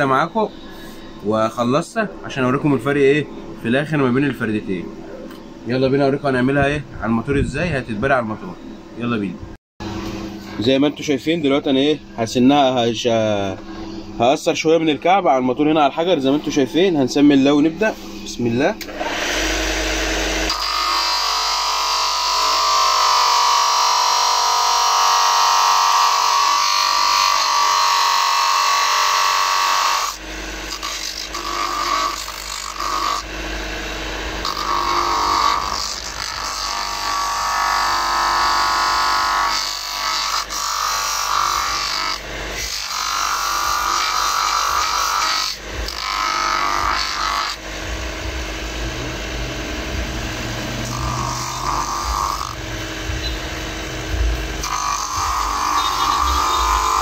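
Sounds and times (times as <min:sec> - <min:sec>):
grinding stone grinding shoe heel: 0:54.2 - 0:57.0.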